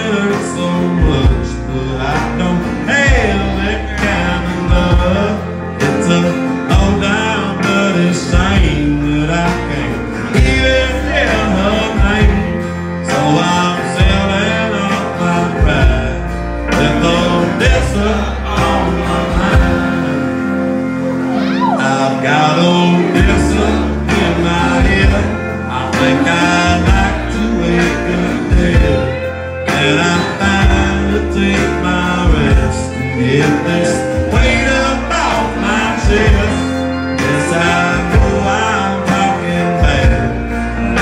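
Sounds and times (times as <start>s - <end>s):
bass line: 0.0s - 41.0s
man singing: 0.0s - 41.0s
pedal steel guitar: 0.0s - 41.0s
strummed acoustic guitar: 0.0s - 41.0s.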